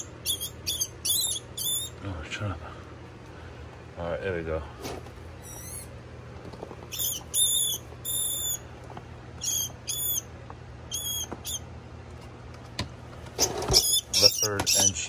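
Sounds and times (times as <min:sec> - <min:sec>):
rat squeaking: 0:00.0 - 0:02.0, 0:05.4 - 0:06.0, 0:06.9 - 0:08.7, 0:09.4 - 0:11.7, 0:13.4 - 0:15.0
low steady hum: 0:00.0 - 0:15.0.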